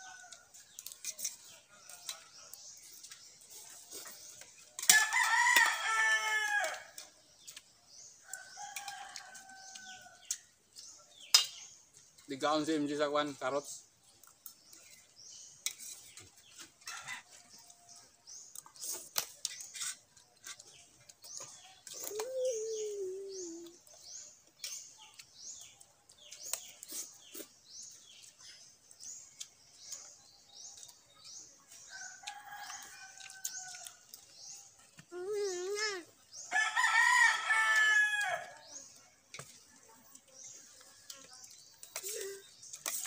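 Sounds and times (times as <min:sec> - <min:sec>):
birds chirping: 0:00.0 - 0:43.0
rooster crowing: 0:04.9 - 0:06.9, 0:36.5 - 0:38.6
spoons clinking on steel plates: 0:11.3 - 0:11.6.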